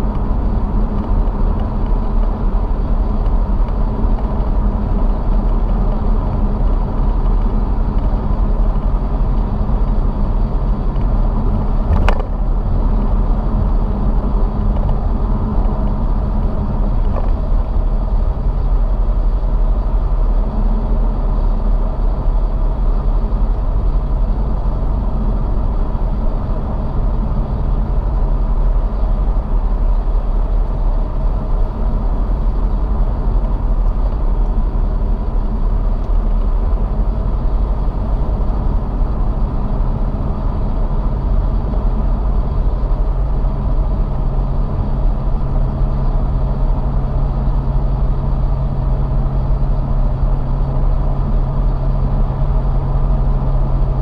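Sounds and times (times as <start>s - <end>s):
car road noise rumble: 0.0s - 54.0s.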